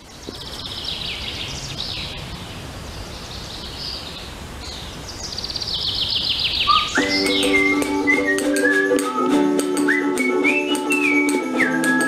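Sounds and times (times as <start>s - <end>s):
songbirds chirping in trills: 0.0s - 8.9s
steady background noise: 0.0s - 12.0s.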